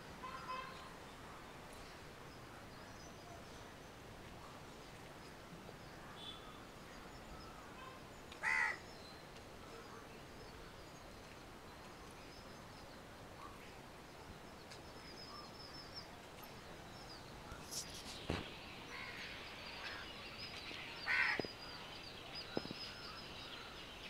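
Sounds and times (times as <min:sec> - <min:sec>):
harsh bird caw: 0:08.4 - 0:08.8, 0:21.0 - 0:21.5.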